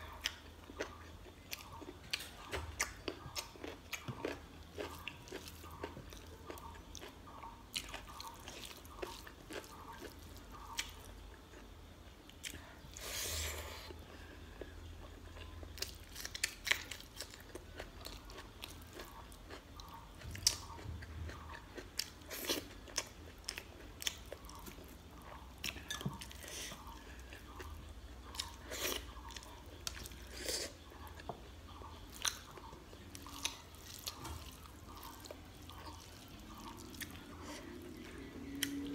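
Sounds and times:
chewing and mouth smacks: 15.0s - 38.9s.

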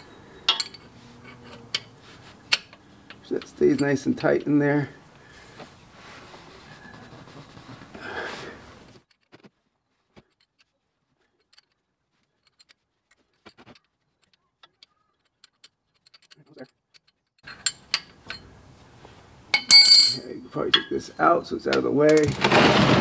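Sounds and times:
loud ringing metal clink: 19.5s - 20.9s.

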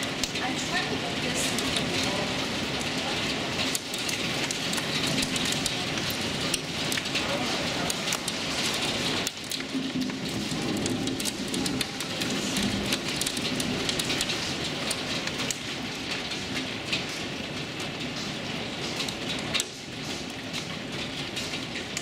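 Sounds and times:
heavy rain pouring: 0.0s - 22.0s
raindrops ticking close by: 0.0s - 22.0s.

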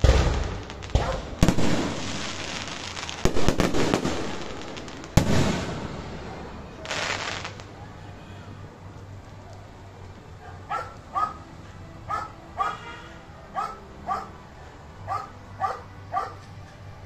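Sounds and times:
dog barking: 10.4s - 11.4s, 12.1s - 13.0s, 13.6s - 14.4s, 15.1s - 16.4s.

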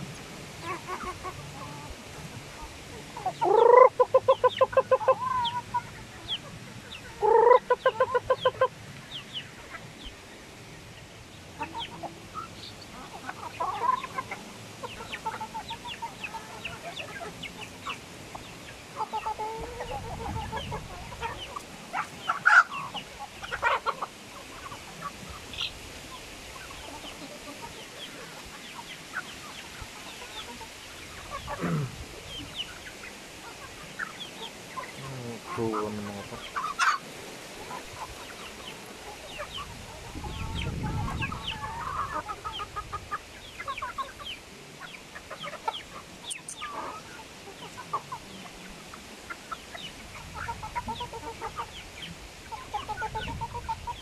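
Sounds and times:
chickens clucking: 0.0s - 54.0s
loud pulsing chicken calls: 0.0s - 54.0s.

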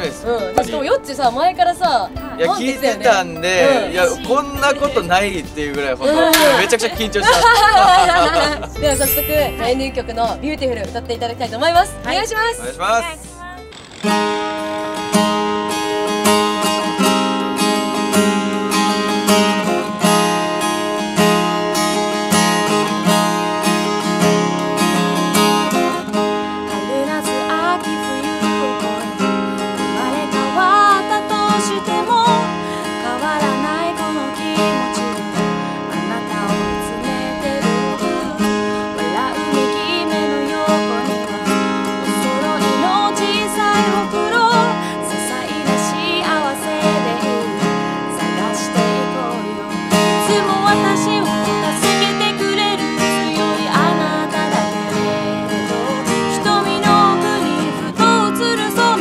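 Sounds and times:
acoustic guitar strumming: 0.0s - 59.0s
woman singing: 6.0s - 13.6s, 26.7s - 59.0s.

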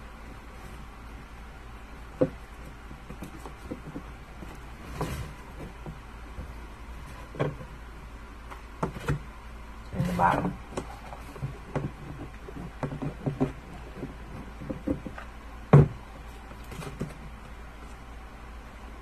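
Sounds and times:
electric fan hum: 0.0s - 19.0s
light knocks and taps: 10.7s - 16.0s.

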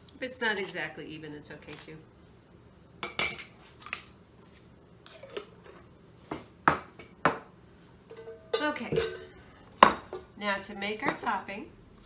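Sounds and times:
utensils and dishes clinking: 8.1s - 9.4s.

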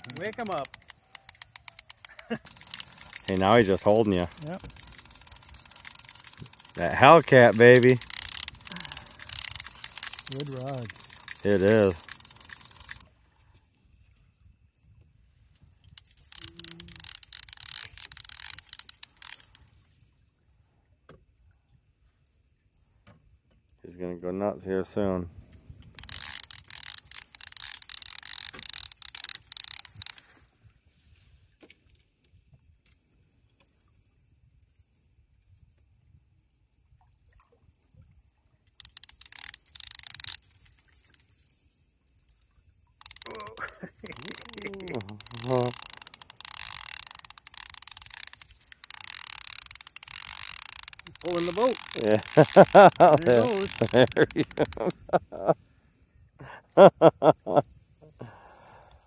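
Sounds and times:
fishing reel clicking: 0.0s - 13.1s, 15.6s - 20.0s, 25.6s - 30.5s, 38.2s - 55.4s, 58.4s - 59.0s
crickets chirring: 0.0s - 23.0s, 25.4s - 30.5s, 32.3s - 59.0s.

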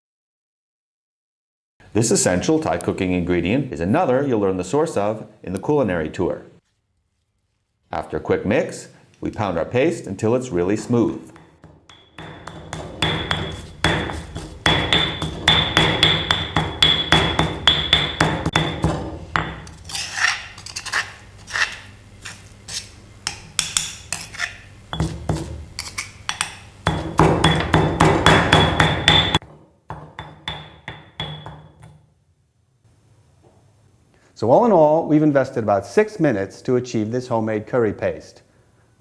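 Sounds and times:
pestle pounding in stone mortar: 11.3s - 20.0s, 24.9s - 25.6s, 26.3s - 31.9s
metal spoon scraping mortar: 11.3s - 27.6s.

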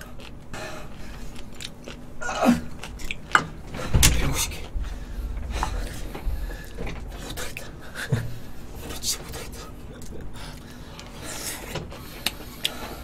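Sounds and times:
chewing: 0.0s - 3.9s.

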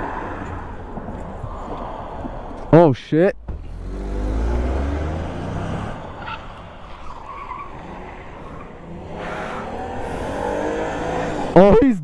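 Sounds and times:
road noise: 0.0s - 12.0s
vehicle engines accelerating: 3.4s - 12.0s.

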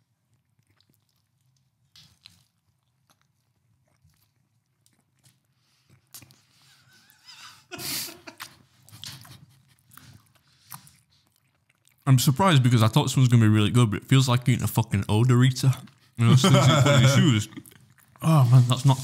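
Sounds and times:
person chewing food: 0.0s - 12.1s, 17.0s - 18.3s.

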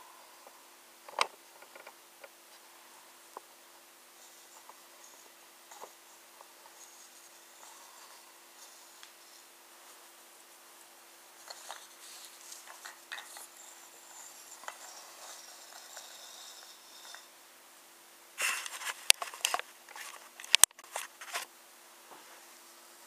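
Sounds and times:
wooden toy train clicks and taps: 20.4s - 20.8s.

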